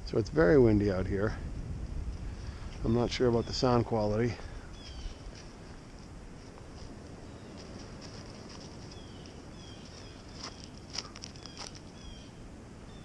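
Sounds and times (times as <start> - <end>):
wind rumbling on microphone: 0.0 - 13.0
footsteps crunching on snow: 4.7 - 12.2.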